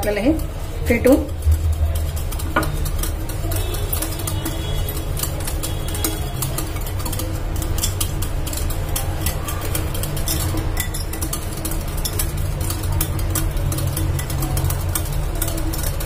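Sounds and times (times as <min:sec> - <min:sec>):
low steady hum: 0:00.0 - 0:15.7
whisk clicking against glass bowl: 0:00.0 - 0:16.0.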